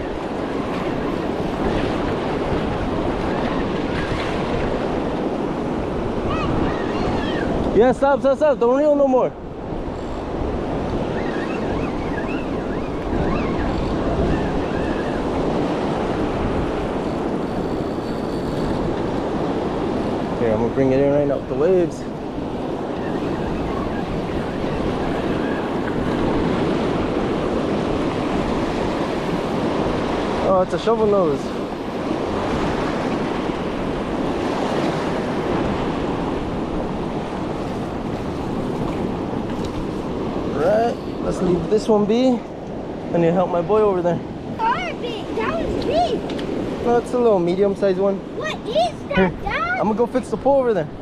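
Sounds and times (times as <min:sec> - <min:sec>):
ocean surf washing: 0:00.0 - 0:51.0
wind buffeting microphone: 0:00.0 - 0:51.0.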